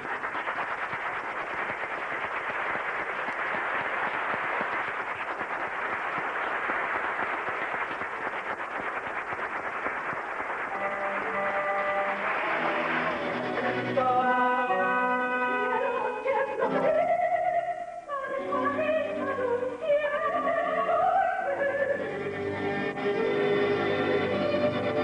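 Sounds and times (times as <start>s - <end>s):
audience applauding: 0.0s - 14.8s.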